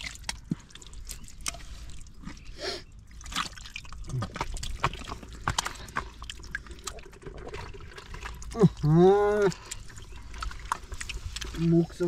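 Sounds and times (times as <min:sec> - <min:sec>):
mud and water squelching: 0:00.0 - 0:12.0
sucking splats in mud: 0:03.2 - 0:12.0.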